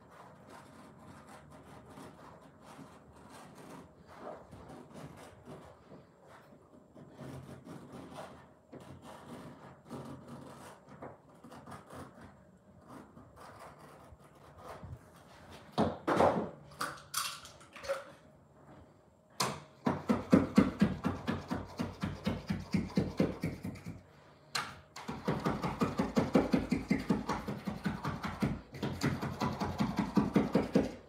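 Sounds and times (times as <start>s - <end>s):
carpet tools scraping: 0.0s - 15.9s.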